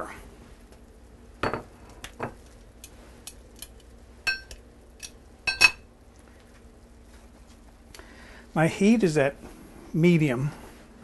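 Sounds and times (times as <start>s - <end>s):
glass dish and utensils clinking: 5.5s - 5.8s.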